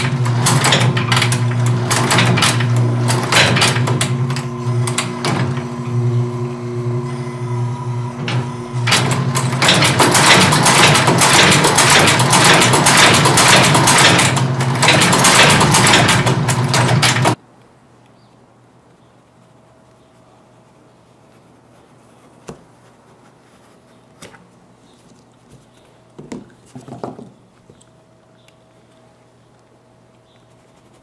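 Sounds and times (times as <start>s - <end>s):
stitching machine rattling: 0.0s - 6.4s, 7.8s - 17.4s.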